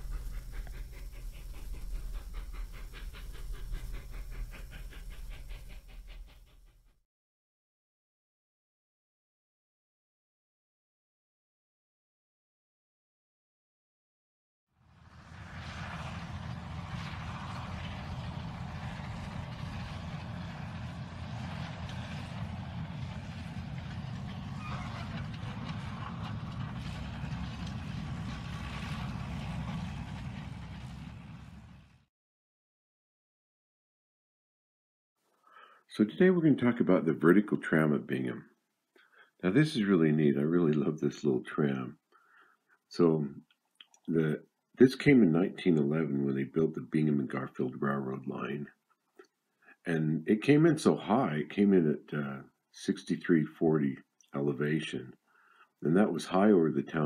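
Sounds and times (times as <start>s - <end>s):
model train rumbling on track: 0.0s - 6.9s, 15.2s - 32.0s, 56.0s - 57.0s
model train wheels clicking: 0.0s - 6.9s
steady low hum: 0.0s - 6.9s, 15.1s - 31.7s.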